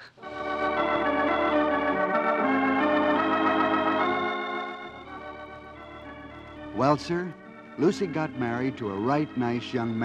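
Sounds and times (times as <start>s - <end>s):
organ playing held chords: 0.2s - 10.0s.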